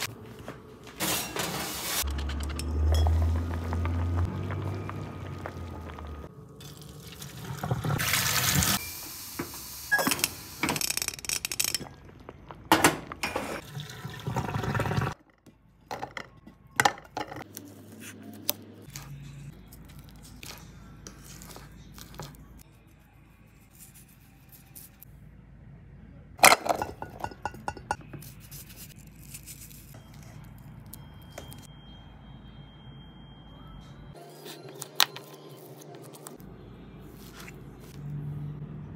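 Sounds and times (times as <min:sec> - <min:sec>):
water pouring and splashing: 0:03.2 - 0:08.8, 0:13.6 - 0:15.2
dishes and utensils clinking: 0:26.4 - 0:28.2.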